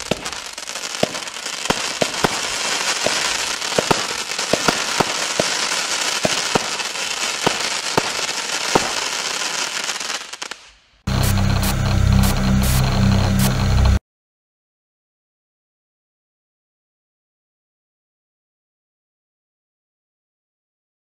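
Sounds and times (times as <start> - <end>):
firework pops: 0.0 - 5.6, 6.2 - 9.2
fireworks hissing and crackling: 0.0 - 13.6.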